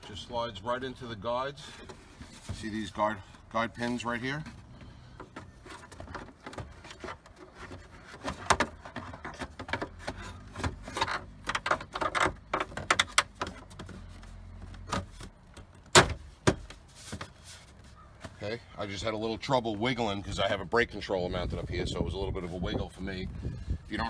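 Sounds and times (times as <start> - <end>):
plastic panel knocking and scraping: 4.4 - 17.4.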